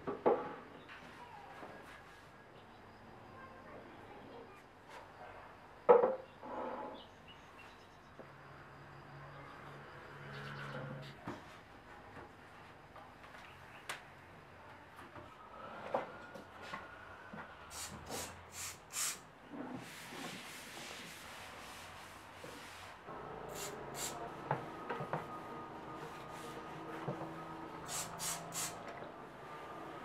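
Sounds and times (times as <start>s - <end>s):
short hissy swishes: 17.7s - 19.3s, 27.9s - 28.8s
cloth wiping surfaces: 19.8s - 24.4s, 25.3s - 27.2s.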